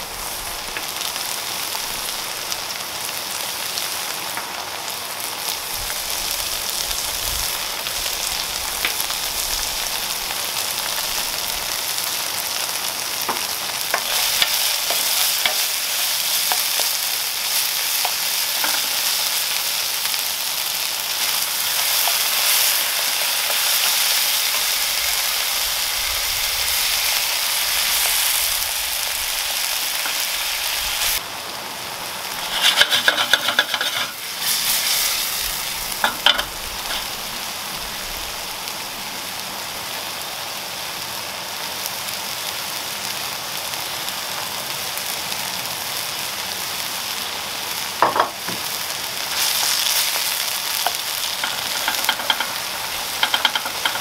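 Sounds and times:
sauce sizzling in a frying pan: 0:00.0 - 0:54.0
wooden spoon scraping a pan: 0:13.3 - 0:19.2, 0:32.4 - 0:35.4, 0:36.0 - 0:37.2, 0:49.3 - 0:54.0
spoon knocking against pan: 0:51.4 - 0:52.5, 0:53.2 - 0:54.0.

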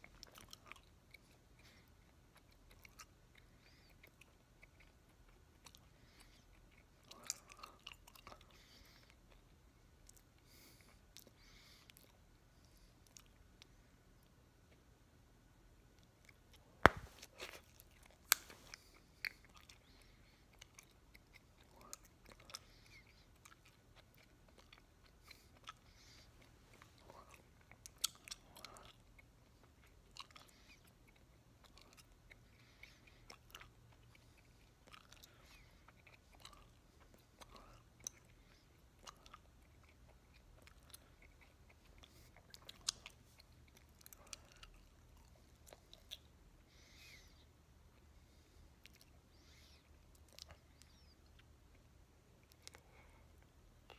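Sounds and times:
open-mouthed gum chewing: 0:00.0 - 0:14.9, 0:15.9 - 0:53.9
bubblegum bubble popping: 0:16.9 - 0:17.2.

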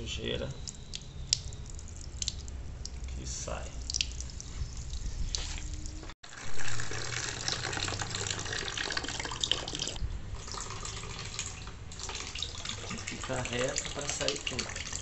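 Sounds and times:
water pouring into plastic bucket: 0:04.0 - 0:15.0.

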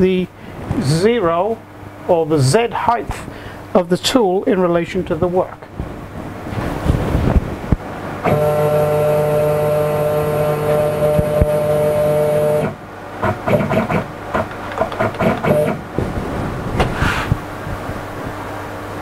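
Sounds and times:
motor whine: 0:08.2 - 0:18.1
short motor whirring bursts: 0:08.3 - 0:15.9.

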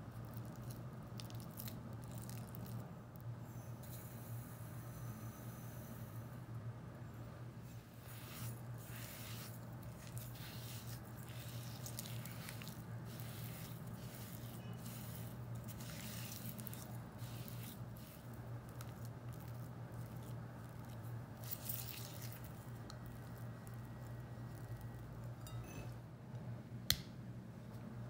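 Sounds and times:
spatula scraping yogurt in glass bowl: 0:08.0 - 0:23.8.

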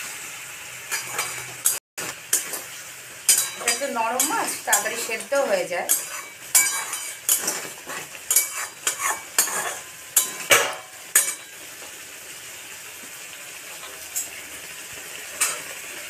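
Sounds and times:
oil sizzling: 0:00.0 - 0:16.0
metal spatula scraping pan: 0:00.9 - 0:11.7.

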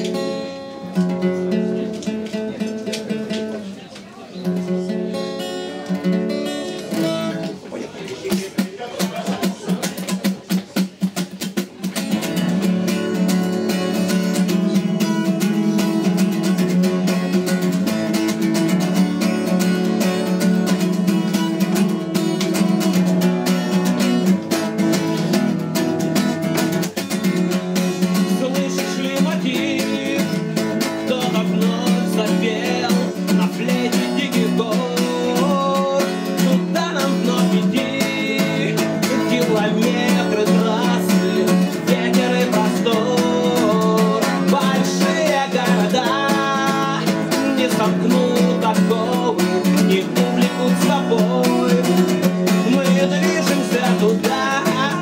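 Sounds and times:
acoustic guitar strumming: 0:00.0 - 0:55.0
man singing: 0:27.1 - 0:55.0.

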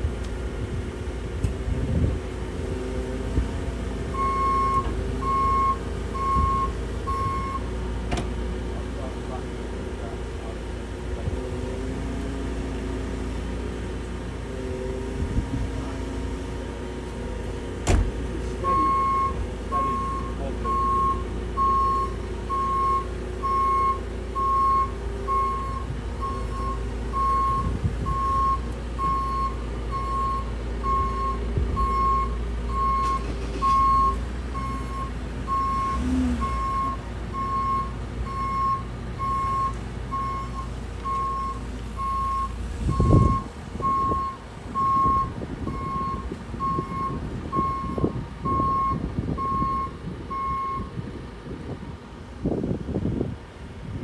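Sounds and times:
diesel engine running: 0:00.0 - 0:54.0
reversing alarm beeping: 0:04.2 - 0:07.7, 0:18.6 - 0:50.9.

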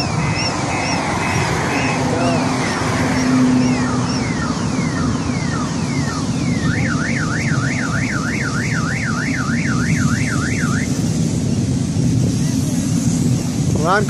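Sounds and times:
car alarm siren: 0:00.0 - 0:11.0
steady low rumble: 0:00.0 - 0:14.0.

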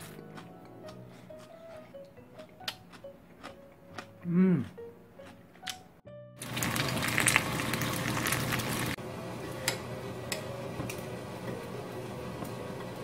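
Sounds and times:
eggs sizzling in frying pan: 0:06.4 - 0:09.0.

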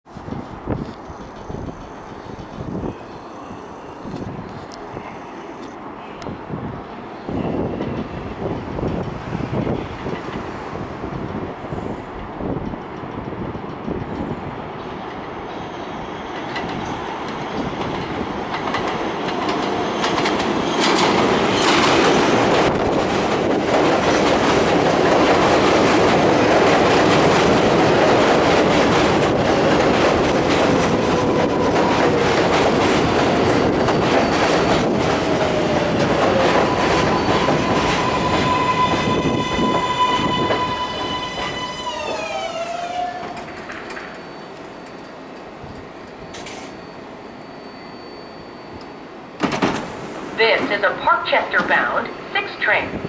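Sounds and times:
subway train rail noise: 0:00.1 - 0:53.0
train wheel clacks: 0:16.3 - 0:42.3.

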